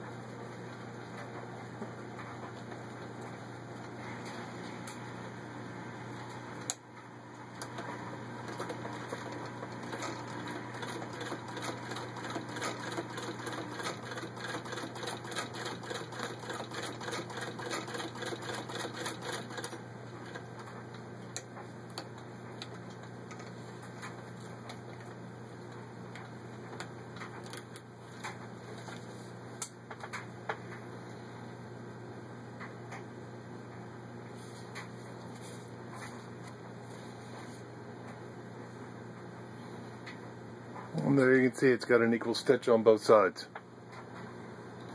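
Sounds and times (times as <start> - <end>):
hand-cranked sewing machine ticking: 9.9 - 19.8.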